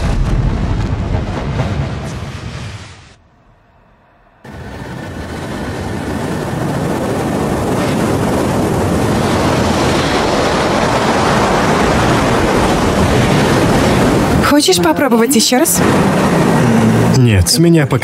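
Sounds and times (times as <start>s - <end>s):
waves breaking: 5.9s - 17.9s.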